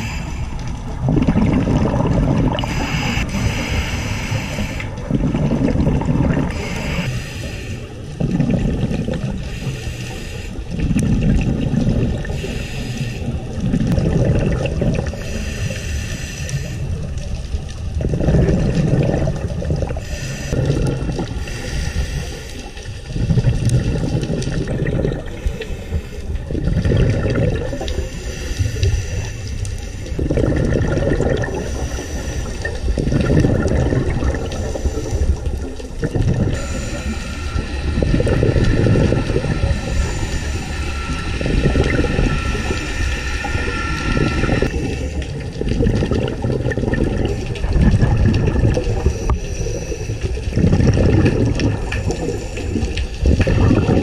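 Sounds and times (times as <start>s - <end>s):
regulator hiss on inhale: 0.0s - 0.8s, 2.6s - 5.0s, 6.5s - 8.2s, 9.4s - 10.8s, 12.2s - 13.5s, 15.1s - 17.1s, 20.0s - 20.6s, 21.4s - 23.1s, 25.3s - 26.5s, 27.7s - 30.2s, 31.4s - 33.0s, 34.2s - 35.8s, 36.5s - 45.3s, 48.8s - 50.6s, 51.8s - 53.3s
exhaled bubbles underwater: 0.0s - 54.0s.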